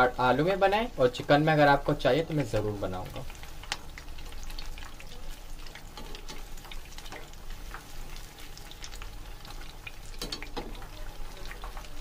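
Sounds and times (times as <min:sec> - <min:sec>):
food deep-frying in oil: 0:00.0 - 0:12.0.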